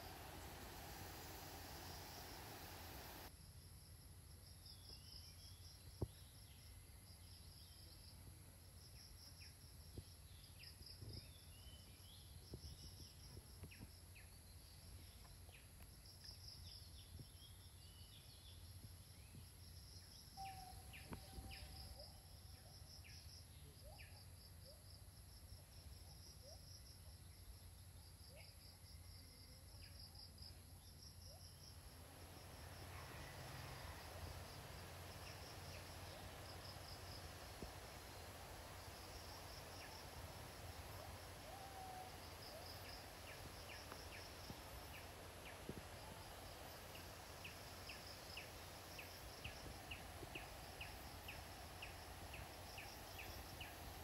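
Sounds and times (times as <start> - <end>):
insect calling in pulsed bursts: 0.0 - 3.3, 31.7 - 54.0
low steady rumble: 0.0 - 3.3.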